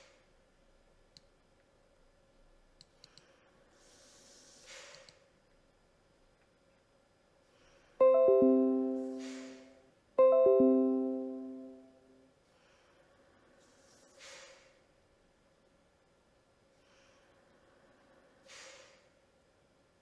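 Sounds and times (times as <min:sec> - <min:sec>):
computer chime falling notes: 0:08.0 - 0:12.1.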